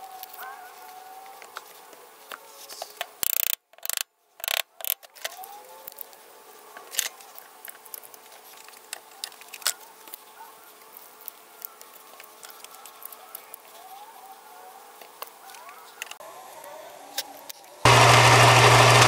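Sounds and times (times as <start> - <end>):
bar clamps ratcheting: 3.2 - 5.0
clamp clicks: 3.2 - 5.0.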